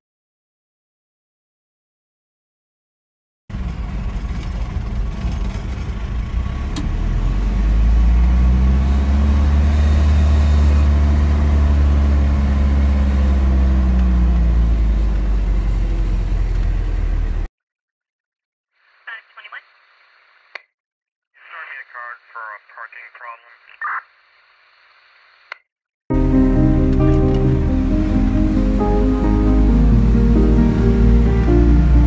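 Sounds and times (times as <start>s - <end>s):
truck engine accelerating: 3.5s - 17.5s, 26.1s - 32.0s.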